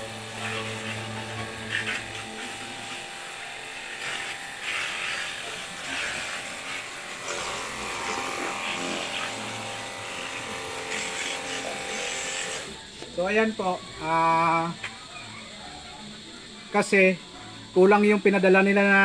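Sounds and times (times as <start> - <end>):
spray gun pump motor buzzing: 0.0 - 15.0.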